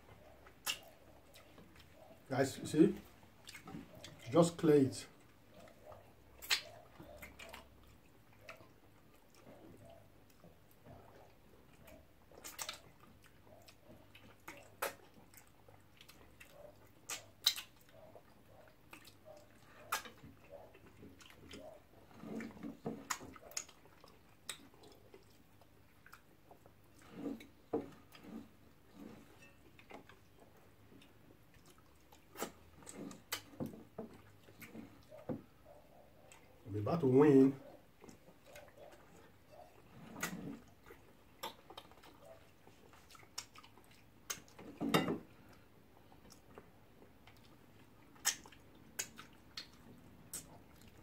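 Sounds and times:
chewing: 0.0s - 2.3s, 2.9s - 4.4s, 5.1s - 36.7s, 37.6s - 51.0s
mouth clicks: 0.2s - 2.3s, 5.6s - 7.7s, 16.4s - 21.8s, 48.1s - 50.8s
wet lip smacks: 0.4s - 2.2s, 5.6s - 7.7s, 11.1s - 21.8s, 23.0s - 26.3s, 40.2s - 44.6s, 47.3s - 51.0s.

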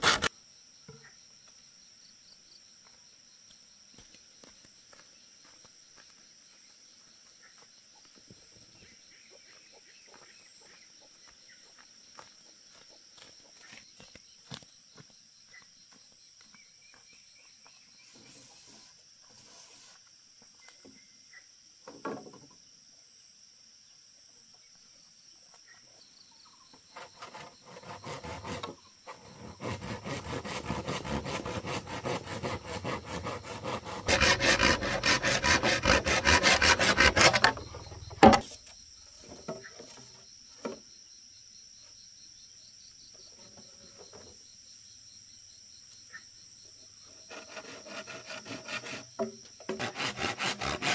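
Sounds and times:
tool rasping against bamboo: 0.0s - 0.3s, 26.9s - 38.6s, 47.1s - 50.9s
high insect drone: 0.0s - 21.8s, 22.6s - 50.9s.

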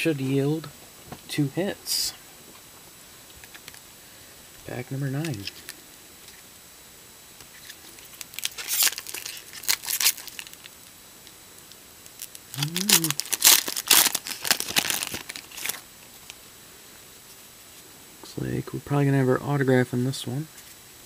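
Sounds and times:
foil wrapper tearing and crinkling: 7.5s - 10.7s, 12.1s - 16.4s.

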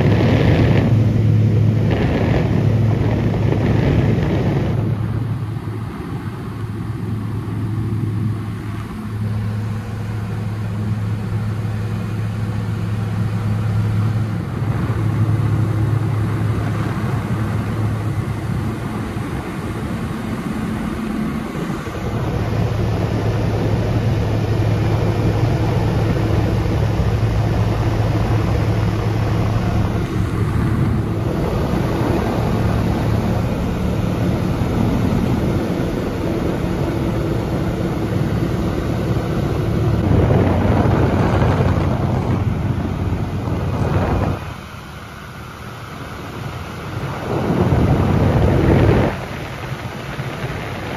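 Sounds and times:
propeller engine droning: 0.0s - 50.9s
rushing air: 0.0s - 50.9s.

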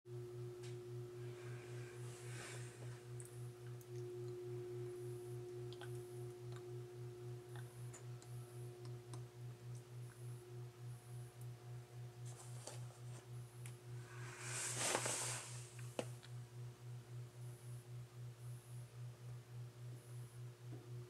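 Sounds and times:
toaster oven pulsing hum: 0.1s - 21.0s
short hiss: 14.2s - 15.8s.

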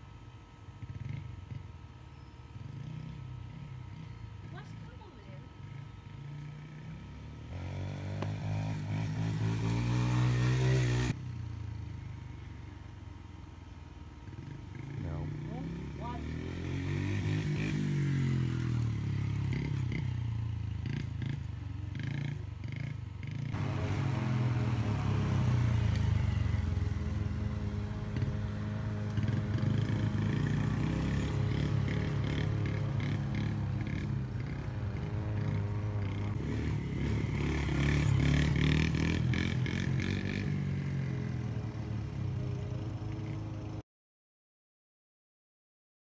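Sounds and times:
dirt bike engine revving: 5.6s - 12.2s, 14.2s - 43.8s.

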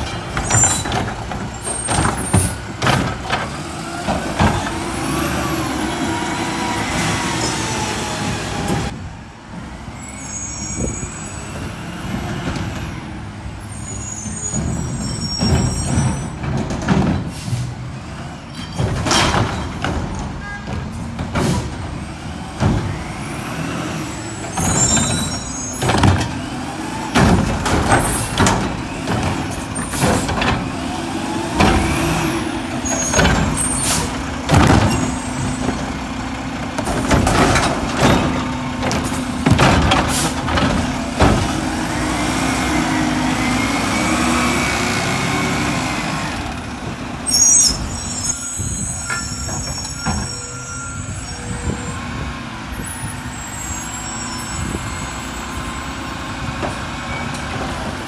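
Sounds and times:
trash carts clanking: 0.0s - 9.1s, 10.8s - 58.0s
truck engine revving: 0.4s - 9.0s, 21.7s - 47.4s.

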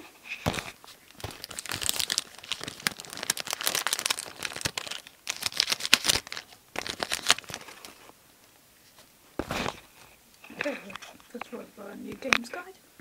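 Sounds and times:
wrapper tearing and crinkling: 0.4s - 8.1s.

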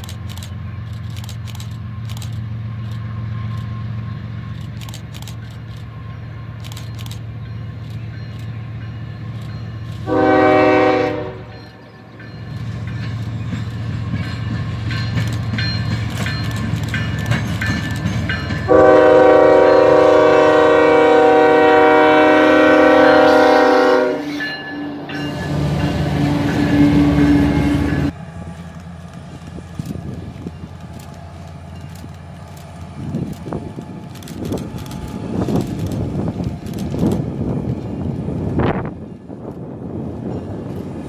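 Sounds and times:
distant train rumble: 0.0s - 41.0s
train engine and wheel noise: 0.0s - 41.0s
locomotive air horn chord: 10.0s - 11.5s, 18.7s - 28.1s.

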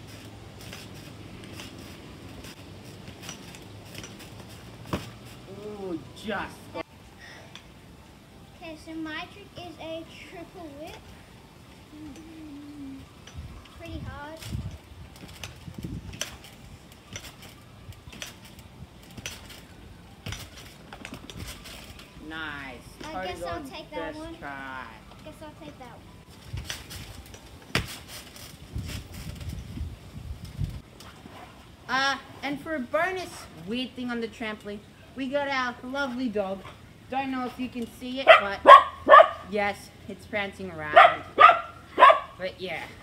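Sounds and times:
trampoline landing click and thud: 0.0s - 5.4s, 14.4s - 22.0s, 26.4s - 29.6s
trampoline clicks and creaks: 0.0s - 6.7s, 9.9s - 43.0s.

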